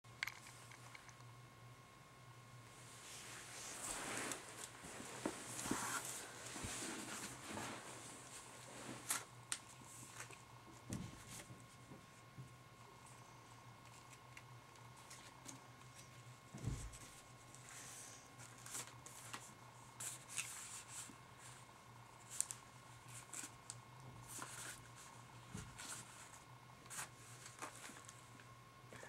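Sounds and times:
steady low hum: 0.1 - 29.0
paper rustling and crinkling: 3.1 - 11.8, 15.0 - 21.6, 22.2 - 28.4.

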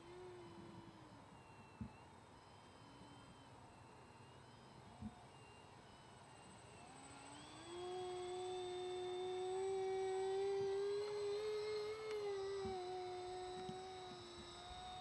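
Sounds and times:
model aircraft propeller whine: 0.0 - 15.0.

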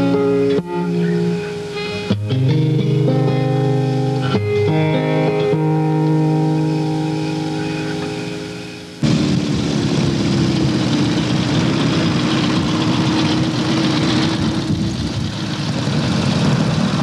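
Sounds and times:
motorcycle engine drone: 0.0 - 17.0
wind rushing: 9.0 - 17.0.

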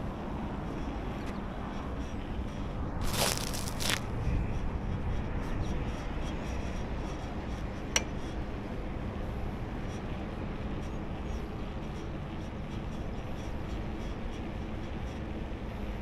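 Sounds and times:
wind and road noise: 0.0 - 16.0.

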